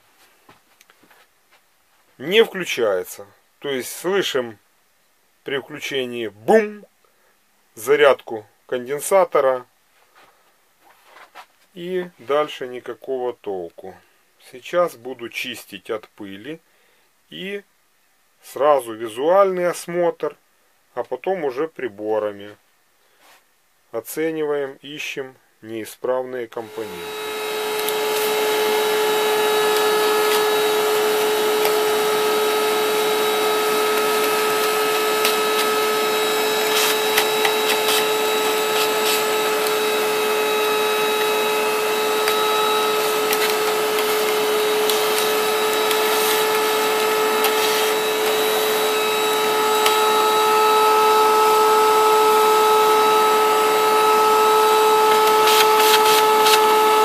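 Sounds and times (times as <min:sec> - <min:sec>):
vacuum cleaner whine: 0:26.5 - 0:57.0
brush scratching circuit board: 0:27.6 - 0:48.4, 0:55.1 - 0:56.7.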